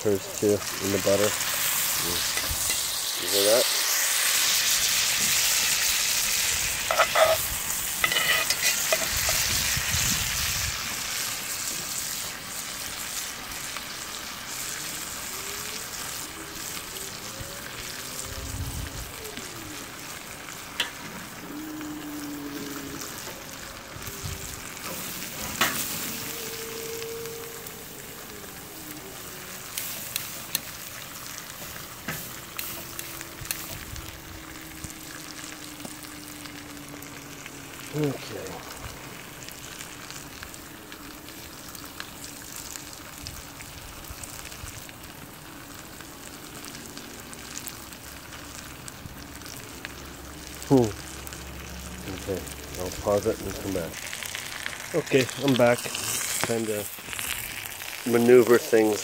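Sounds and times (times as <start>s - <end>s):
steaks sizzling in skillet: 0.0s - 59.0s.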